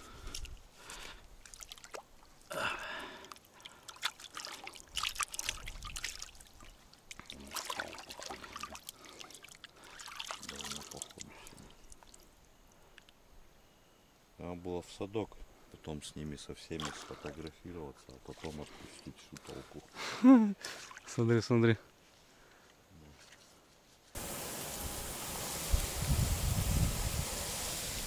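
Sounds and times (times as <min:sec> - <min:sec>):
water splashing and trickling: 0:00.0 - 0:12.4, 0:16.6 - 0:19.9, 0:20.6 - 0:21.4.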